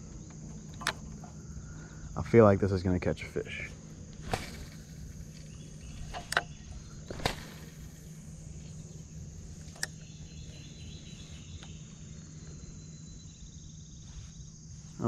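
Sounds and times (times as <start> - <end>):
insects chirring: 0.0 - 15.0
low hum: 0.0 - 15.0
sharp clicks: 0.3 - 1.3, 4.1 - 6.5, 9.6 - 10.0.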